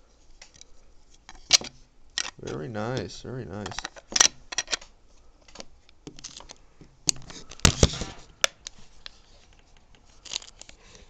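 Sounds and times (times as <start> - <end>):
radio handling clicks and knocks: 1.3 - 8.8.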